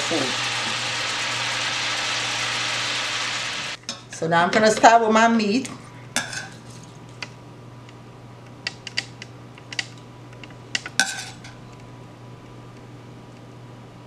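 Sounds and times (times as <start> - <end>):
metal tongs clinking on pan: 10.8 - 11.6.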